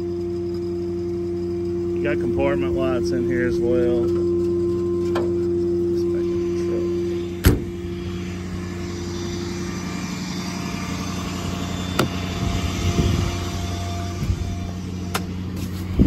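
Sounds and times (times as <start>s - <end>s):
diesel engine idling: 0.0s - 16.0s.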